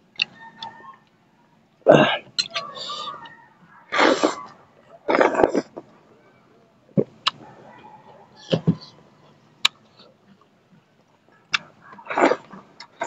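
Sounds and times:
chewing and wet mouth noises: 0:02.3 - 0:05.8.

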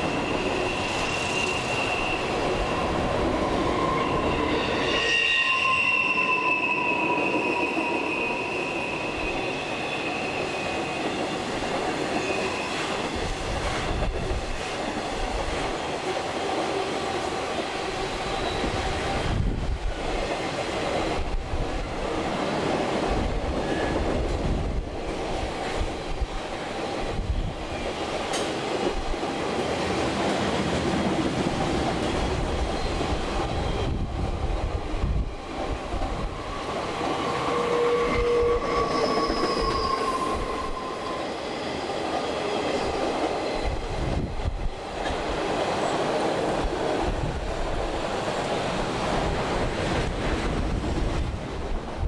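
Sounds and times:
train wheels rumbling on rail: 0:00.0 - 0:52.0
wheels squealing: 0:36.2 - 0:41.6.

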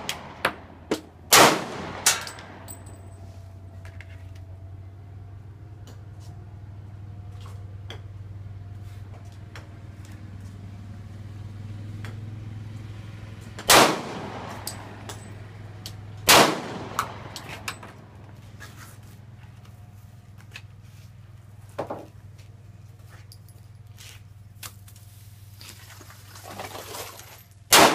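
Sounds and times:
pistol shots: 0:01.3 - 0:02.6, 0:13.7 - 0:14.8, 0:16.3 - 0:17.7.

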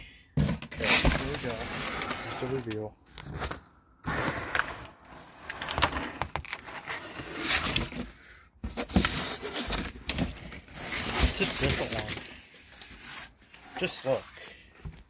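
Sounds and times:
cardboard box rustling: 0:00.4 - 0:12.3.

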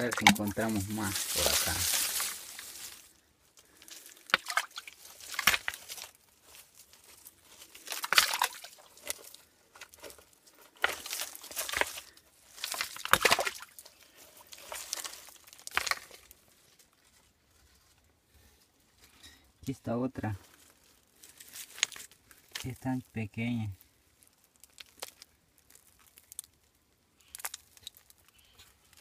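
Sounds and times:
hand digging through soil: 0:00.0 - 0:18.0
sharp clicks of stones: 0:27.2 - 0:29.0.

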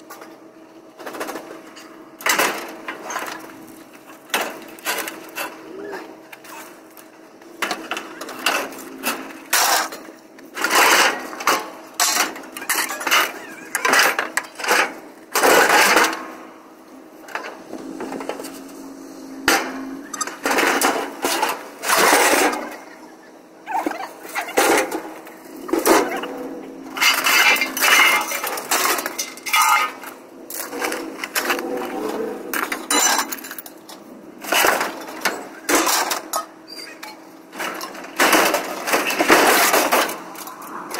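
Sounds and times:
scrap metal clanking and banging: 0:07.6 - 0:16.6, 0:17.2 - 0:23.1, 0:23.7 - 0:40.9
metal scraping on trailer bed: 0:07.9 - 0:23.0, 0:23.7 - 0:40.9.

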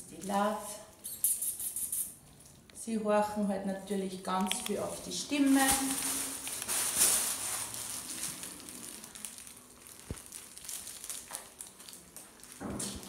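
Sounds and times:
kittens crunching dry kibble: 0:06.0 - 0:13.0.

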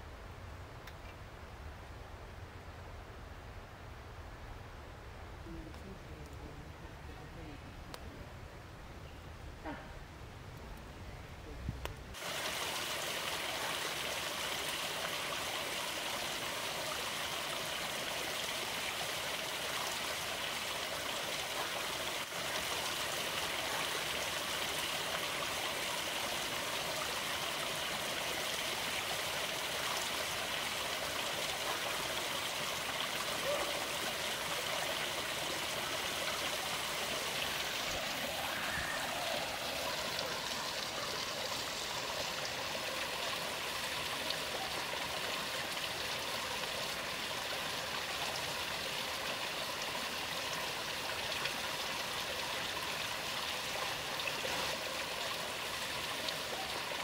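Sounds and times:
running water: 0:12.1 - 0:57.0.

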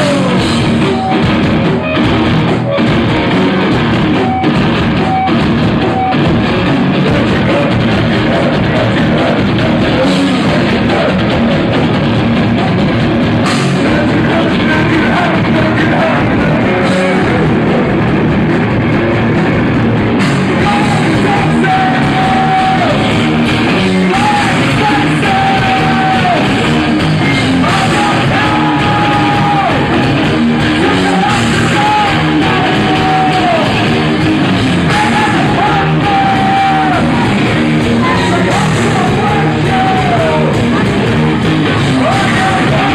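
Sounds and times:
singer yelling: 0:00.0 - 0:02.0, 0:13.4 - 0:18.4, 0:20.4 - 0:42.9
live rock band playing: 0:00.0 - 0:42.9.

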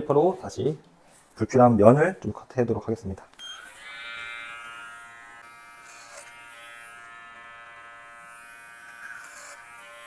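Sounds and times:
electric hair clipper buzzing: 0:03.4 - 0:10.0.

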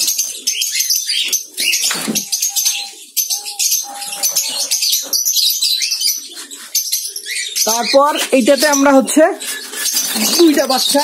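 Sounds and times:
doves' wings fluttering: 0:08.2 - 0:11.0.

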